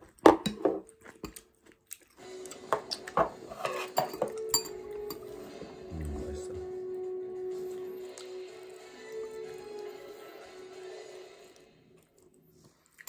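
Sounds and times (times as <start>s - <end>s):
chewing: 0.8s - 3.2s, 7.8s - 10.3s, 11.3s - 13.0s
background music: 2.2s - 12.5s.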